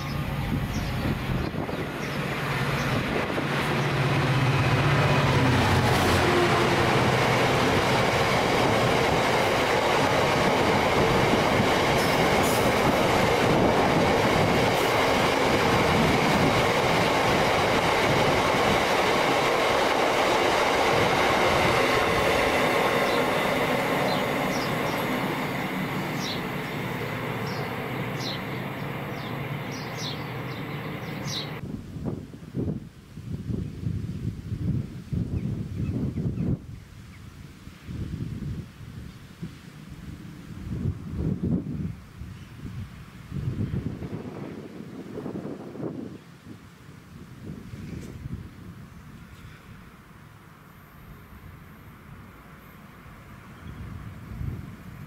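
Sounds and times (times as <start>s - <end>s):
diesel locomotive engine passing: 0.0s - 31.6s, 39.7s - 55.0s
train wagons rumbling over rails: 0.0s - 31.6s.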